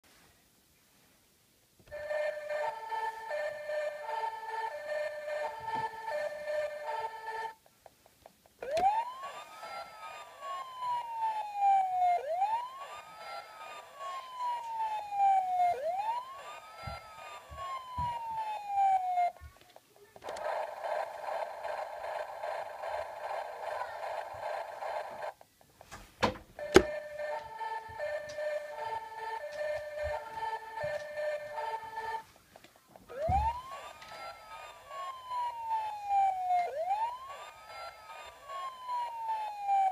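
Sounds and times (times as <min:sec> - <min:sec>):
toy electronic siren wailing: 0:01.9 - 0:07.6, 0:08.6 - 0:19.5, 0:20.2 - 0:25.4, 0:26.6 - 0:32.2, 0:33.1 - 0:39.9
steady electronic sound effect: 0:20.2 - 0:25.3.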